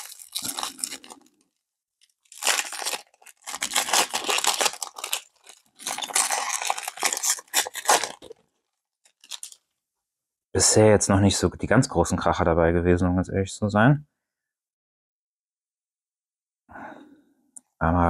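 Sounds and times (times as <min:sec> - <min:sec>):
wrapper tearing and crinkling: 0:00.0 - 0:01.4, 0:02.0 - 0:09.6.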